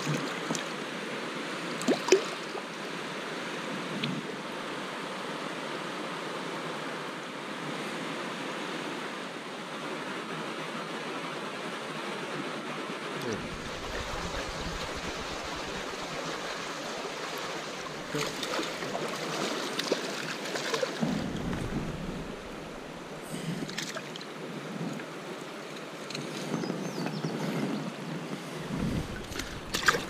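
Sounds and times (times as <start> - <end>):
stream water running: 0.0 - 6.5, 13.0 - 30.0
wind rumbling on microphone: 13.2 - 19.6, 21.0 - 30.0
fish splashing at the surface: 18.1 - 21.0, 29.1 - 30.0.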